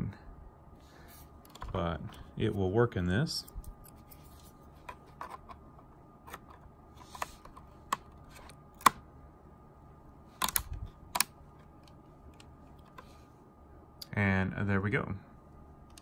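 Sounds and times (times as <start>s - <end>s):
plastic and metal clicks: 10.4s - 13.0s.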